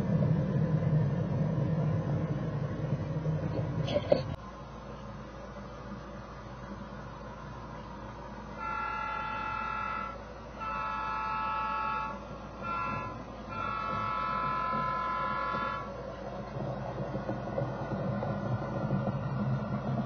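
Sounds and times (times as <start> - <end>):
low rumble: 0.0 - 4.8, 12.4 - 20.0
model train horn blasts: 8.4 - 16.1.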